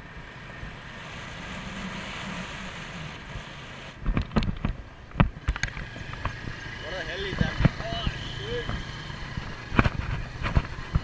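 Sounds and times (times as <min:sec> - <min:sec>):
motorcycle riding: 0:00.0 - 0:11.0
wind noise on microphone: 0:01.6 - 0:06.6, 0:08.7 - 0:11.0.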